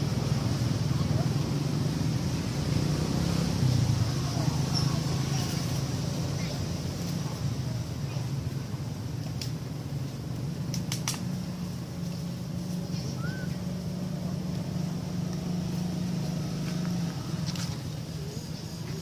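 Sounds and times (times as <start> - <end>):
sharp clicks: 10.7 - 11.3.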